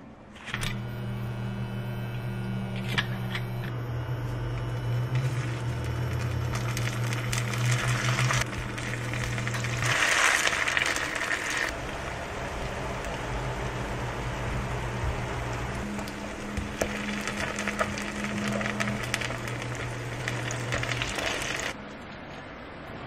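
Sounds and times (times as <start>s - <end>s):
steady low hum: 0.0s - 23.0s
patties sizzling in oil: 5.0s - 21.8s.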